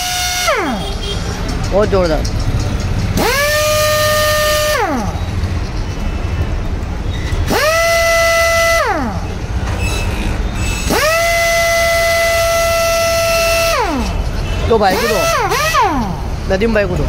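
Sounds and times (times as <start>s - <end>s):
pneumatic impact wrench whining: 0.0s - 1.2s, 2.6s - 5.6s, 7.2s - 16.5s.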